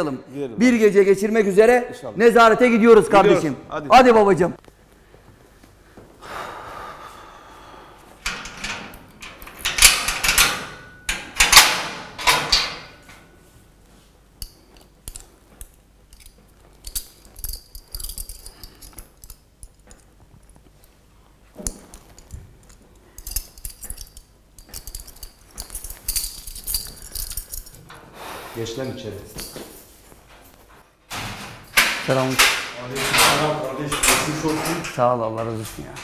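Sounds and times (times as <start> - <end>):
keys jangling: 8.2 - 13.2, 14.4 - 20.6, 21.6 - 27.9, 29.2 - 29.9
lock clicking: 8.2 - 13.2
metal door clattering: 8.2 - 13.3, 31.1 - 36.0.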